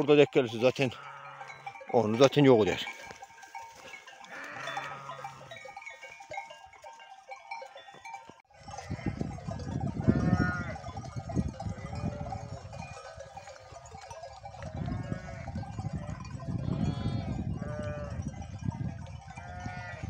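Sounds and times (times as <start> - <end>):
neck bells clanking: 0.0 - 20.0
sheep bleating: 4.3 - 5.6, 10.0 - 10.9, 14.8 - 15.6, 16.6 - 18.2, 19.4 - 20.0.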